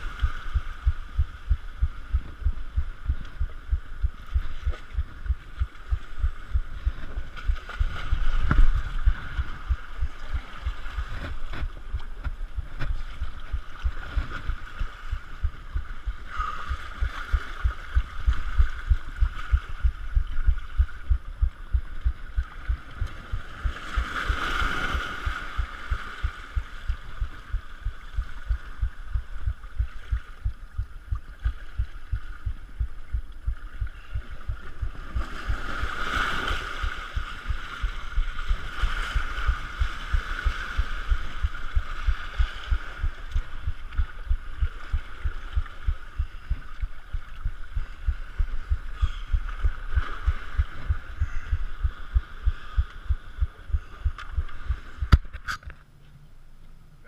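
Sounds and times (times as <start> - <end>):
surf washing over rocks: 0.0 - 20.2, 21.6 - 29.2, 34.8 - 46.1
low throbbing thump: 0.2 - 23.8, 25.6 - 35.7, 36.8 - 55.3.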